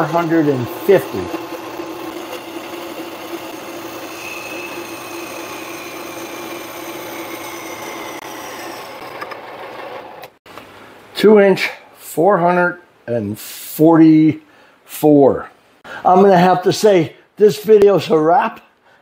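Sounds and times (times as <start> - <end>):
lathe tool cutting plastic hiss: 0.0 - 9.3
lathe motor hum: 0.0 - 10.4.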